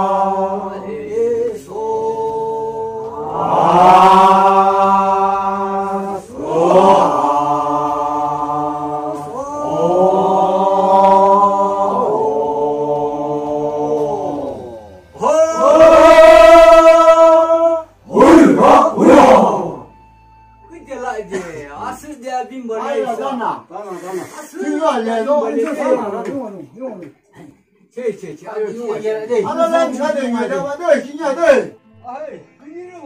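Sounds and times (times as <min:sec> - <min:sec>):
group chanting held notes: 0:00.0 - 0:19.9.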